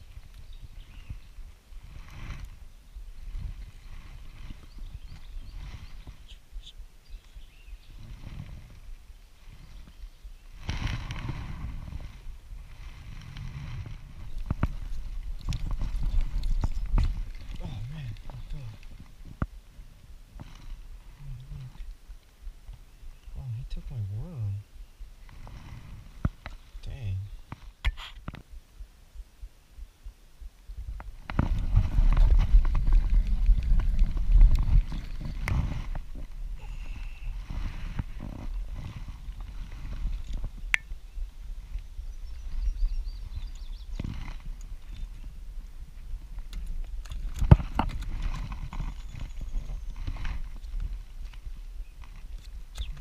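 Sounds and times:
low rumbling: 0.0s - 27.6s, 28.7s - 52.2s
camera handling rumble: 12.9s - 19.5s, 27.5s - 28.5s, 31.0s - 40.9s, 46.4s - 53.0s.

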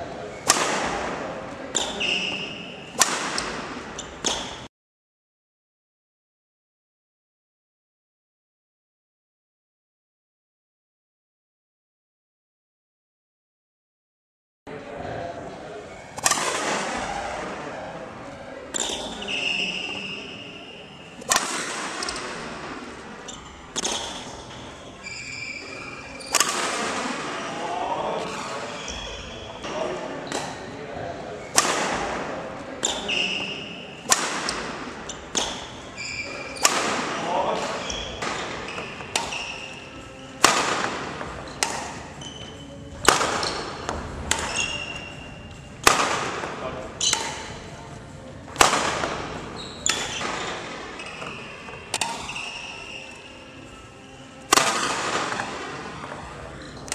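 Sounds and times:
racket hitting shuttlecock: 0.4s - 4.7s, 16.2s - 17.6s, 18.7s - 19.4s, 21.2s - 27.6s, 28.2s - 30.7s, 31.5s - 45.1s, 45.8s - 47.7s, 48.5s - 53.2s, 54.5s - 56.2s
faint shuttlecock hit: 3.0s - 4.7s, 21.2s - 22.9s, 51.2s - 52.6s.

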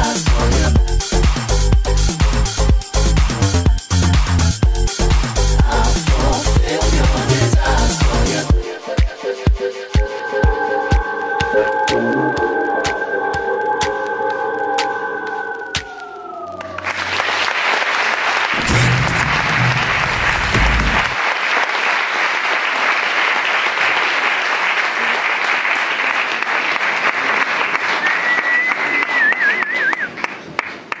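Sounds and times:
music: 0.0s - 18.0s, 18.6s - 21.2s
audience applauding: 16.4s - 31.0s
short wavering whistle: 28.1s - 30.2s.

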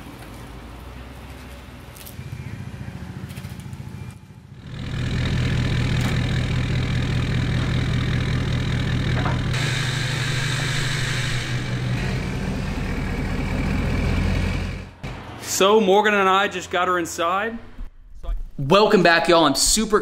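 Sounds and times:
truck engine running: 2.2s - 15.4s
hiss: 9.6s - 12.5s.

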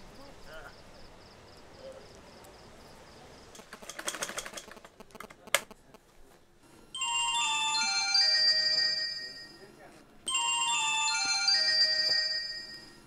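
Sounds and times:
bright chiming melody: 7.0s - 13.0s.

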